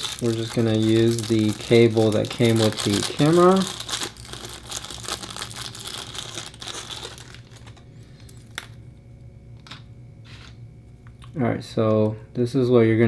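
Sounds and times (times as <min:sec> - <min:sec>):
plastic bag crinkling: 0:00.0 - 0:08.8.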